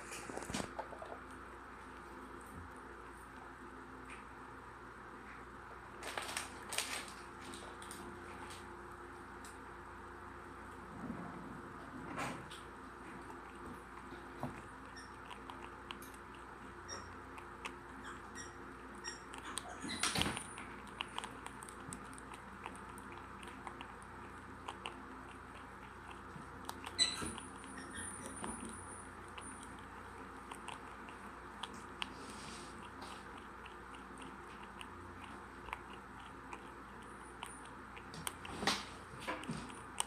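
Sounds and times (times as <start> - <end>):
prairie dog chewing crunchily: 12.1 - 40.0.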